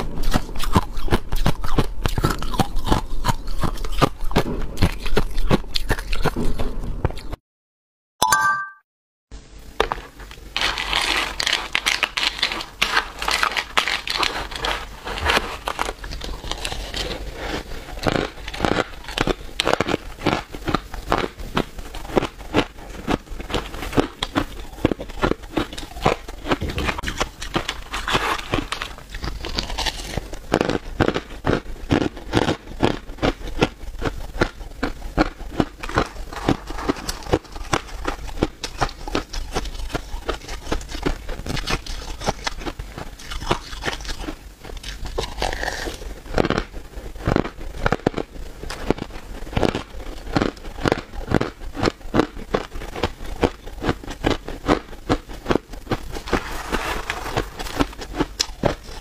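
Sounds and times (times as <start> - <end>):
ice being chewed: 0.0 - 7.4, 10.3 - 59.0
plastic spoon scraping ice: 10.6 - 20.4, 22.0 - 30.8, 35.8 - 40.8, 56.0 - 59.0.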